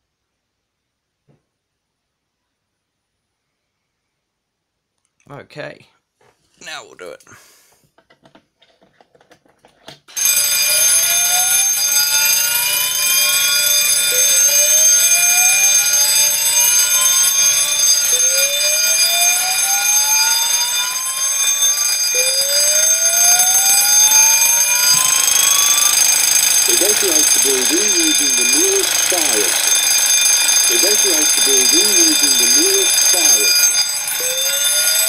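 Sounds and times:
buzzy fire alarm tone: 10.1s - 35.0s
rising slow-whoop alarm: 10.2s - 35.0s.

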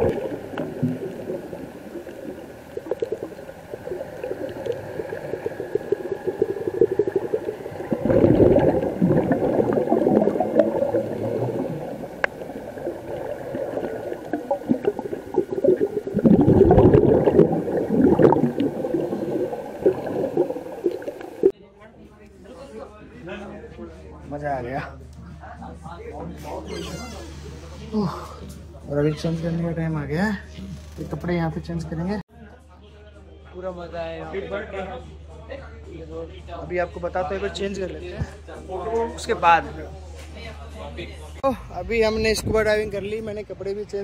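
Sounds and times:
underwater exhaled bubbles gurgling: 0.0s - 21.5s.

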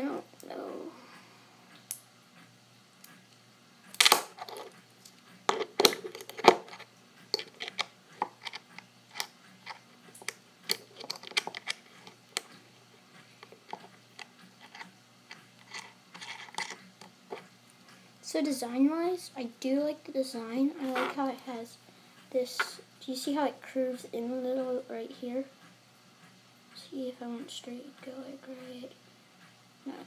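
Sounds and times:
small metal parts clicking: 5.5s - 12.5s, 13.4s - 17.4s.

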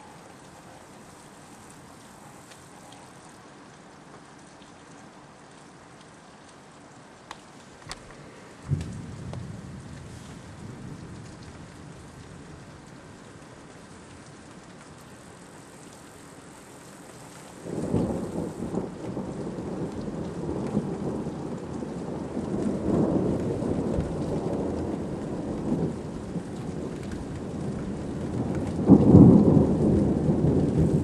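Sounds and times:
steady rain: 0.0s - 31.0s
thunderclap rolling rumble: 7.9s - 12.7s, 17.6s - 31.0s.

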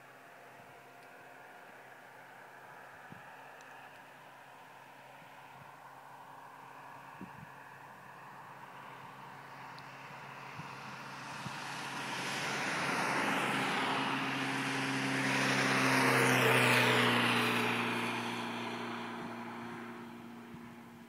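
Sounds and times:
car driving past: 5.2s - 21.0s.

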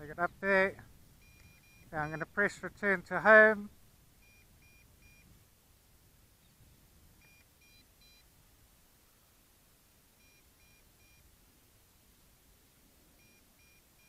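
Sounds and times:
short high-pitched beeps: 1.2s - 2.6s, 4.2s - 5.3s, 7.2s - 8.3s, 10.2s - 11.3s, 13.2s - 14.0s.

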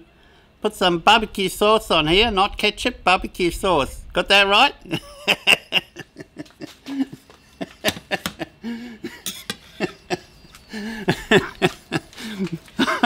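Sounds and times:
man coughing and chuckling: 4.8s - 13.0s.

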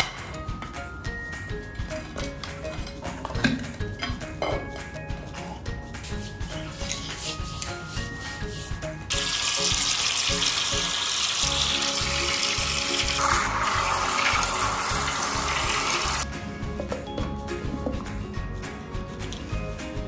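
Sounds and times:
background music: 0.0s - 20.0s
water jet rushing into drain: 9.1s - 16.2s.

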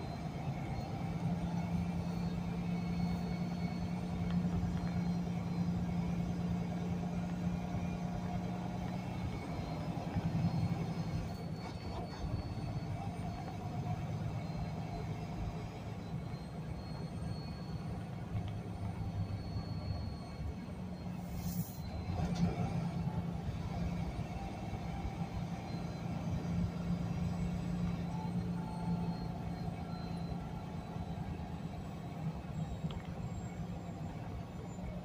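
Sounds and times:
truck diesel engine rumbling: 0.0s - 35.0s.

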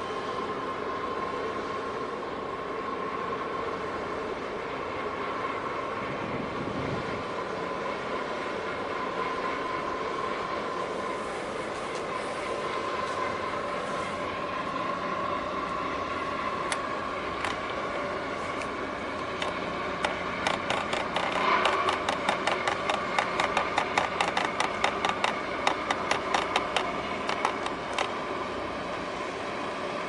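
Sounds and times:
mechanical drone: 16.3s - 28.8s
rapid sharp clicks: 19.2s - 28.1s.

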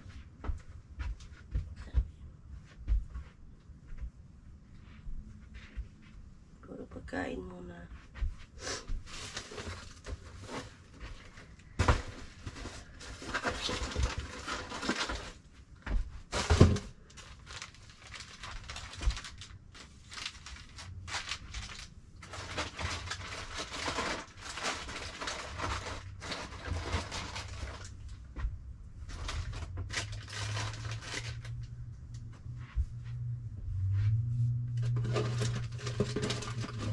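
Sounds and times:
rustling of bags and boxes: 7.7s - 33.2s, 33.8s - 36.9s
low hum: 27.4s - 36.9s.

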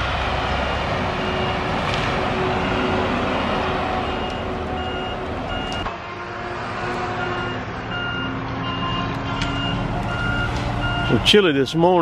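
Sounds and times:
backup alarm beeping: 2.5s - 3.0s, 4.0s - 5.9s, 7.2s - 11.2s.

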